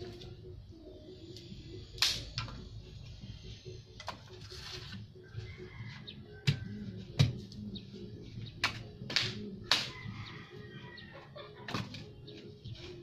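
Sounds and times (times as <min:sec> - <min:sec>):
machete chopping dry branches: 0:08.6 - 0:10.0.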